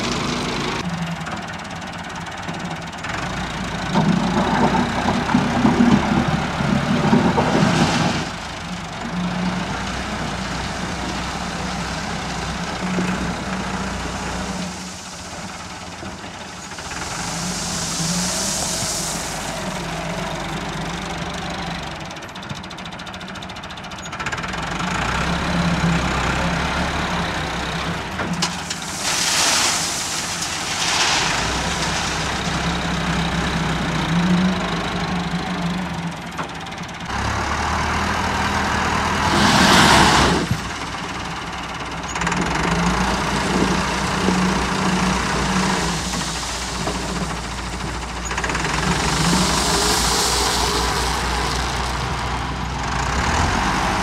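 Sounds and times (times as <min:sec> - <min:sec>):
tractor diesel engine under load: 0:00.0 - 0:54.0
loader bucket digging gravel: 0:03.2 - 0:22.0, 0:25.0 - 0:35.1, 0:35.9 - 0:54.0.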